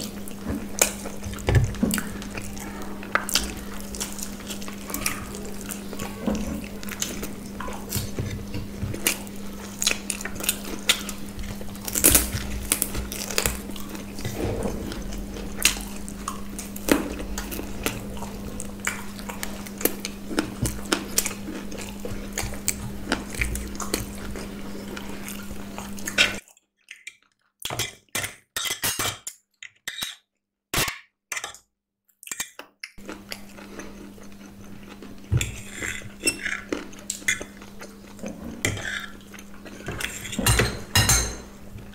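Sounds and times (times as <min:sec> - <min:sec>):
steady low hum: 0:00.0 - 0:26.4
chewing and crunching food: 0:00.0 - 0:40.9
cutlery clinking on plates: 0:39.9 - 0:41.5.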